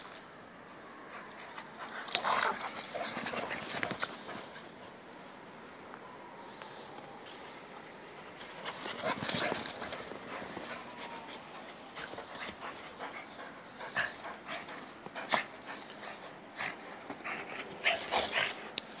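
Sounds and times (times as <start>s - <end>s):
dog panting: 8.8s - 19.0s.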